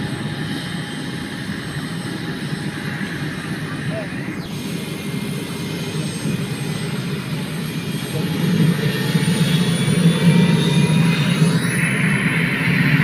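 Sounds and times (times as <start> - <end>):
helicopter engine and rotor drone: 0.0 - 13.0.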